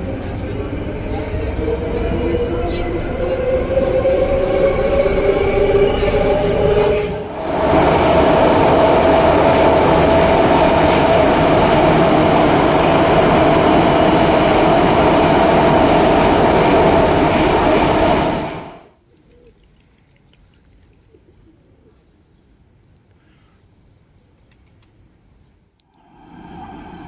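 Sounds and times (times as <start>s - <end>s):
metro train whine: 0.0s - 19.0s, 25.9s - 27.0s
train wheels roaring in tunnel: 0.0s - 19.0s, 25.8s - 27.0s.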